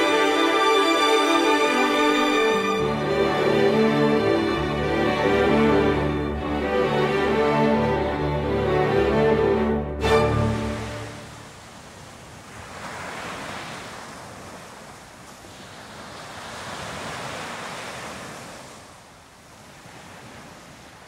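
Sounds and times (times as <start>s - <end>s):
sea waves on beach: 0.0s - 7.8s, 10.0s - 21.0s.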